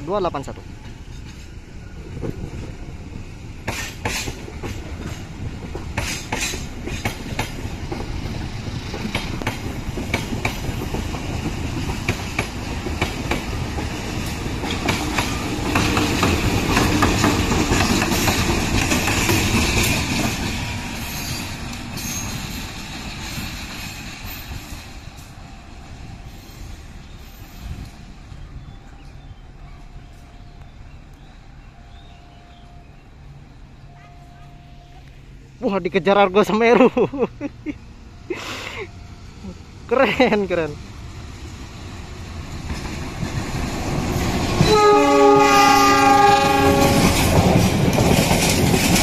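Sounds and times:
wheels clicking over rail joints: 0:03.6 - 0:25.3, 0:42.5 - 0:49.0.

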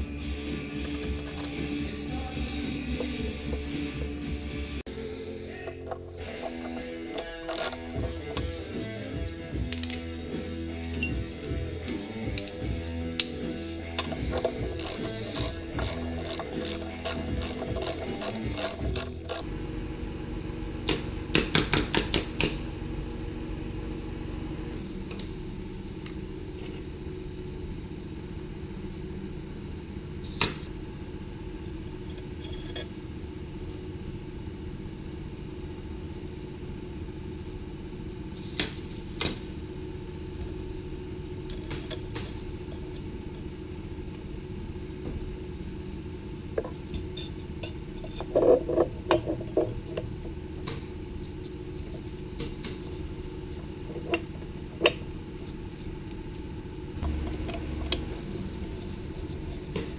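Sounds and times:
background music: 0:00.0 - 0:19.4
motorcycle engine idling: 0:00.0 - 0:38.8, 0:48.9 - 0:59.9
clutch rattle: 0:57.0 - 0:59.9.

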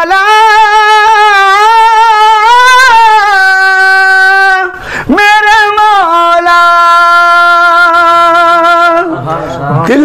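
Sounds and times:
man singing long held notes: 0:00.0 - 0:10.0
quick breath: 0:04.8 - 0:05.1.

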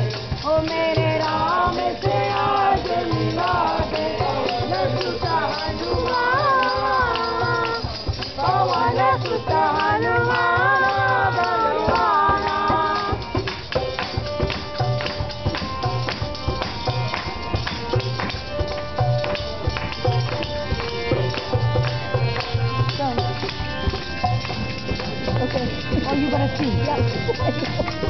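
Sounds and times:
jingling hand percussion: 0:00.0 - 0:28.0
group singing devotional song: 0:00.1 - 0:13.8.

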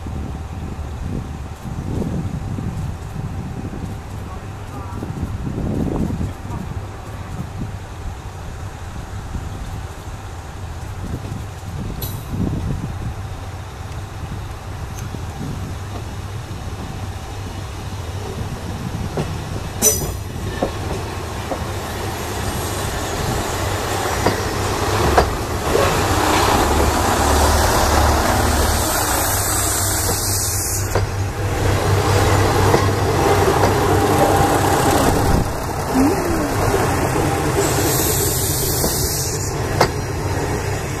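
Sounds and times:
diesel railcar engine thrumming: 0:00.0 - 0:41.0
wheels clicking over rail joints: 0:18.1 - 0:28.6, 0:29.6 - 0:41.0.

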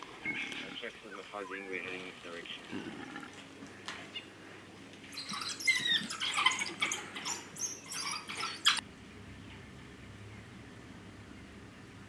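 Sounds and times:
wild dogs twittering: 0:00.0 - 0:08.8.

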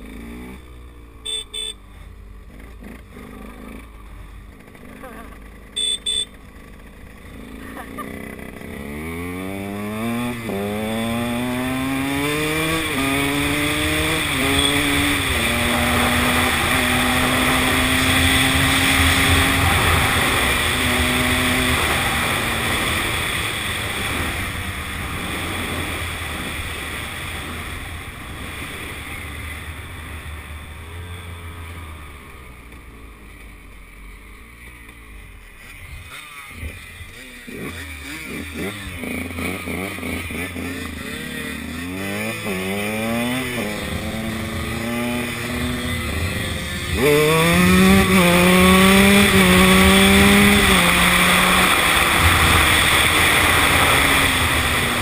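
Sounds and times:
motorcycle accelerating through gears: 0:00.0 - 0:55.0.

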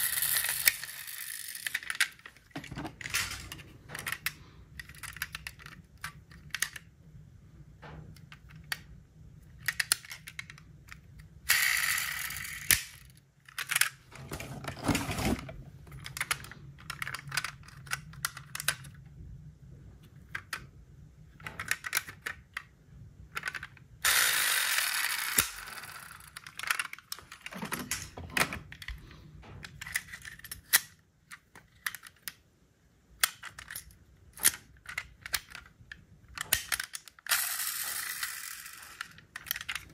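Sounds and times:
toy cars rattling and scraping: 0:00.0 - 0:06.8, 0:09.5 - 0:19.0, 0:23.3 - 0:28.9, 0:33.2 - 0:39.9
metal toy cars clicking: 0:00.0 - 0:06.9, 0:09.5 - 0:14.0, 0:15.9 - 0:19.0, 0:21.4 - 0:22.7, 0:23.3 - 0:28.9, 0:33.2 - 0:39.9.

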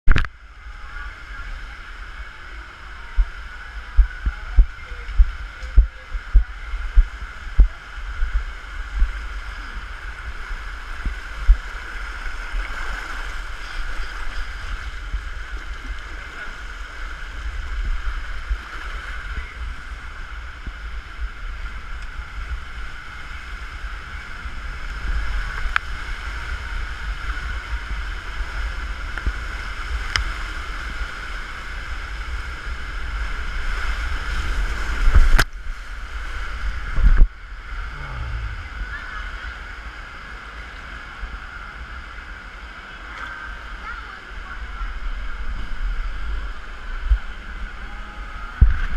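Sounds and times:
water rushing down waterslide: 0:00.4 - 0:48.9
low thumps against camera: 0:03.9 - 0:08.4.

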